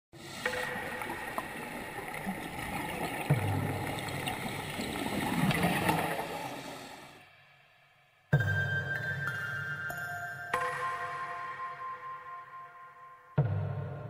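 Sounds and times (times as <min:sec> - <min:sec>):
water gurgling and bubbling: 0:00.2 - 0:07.2.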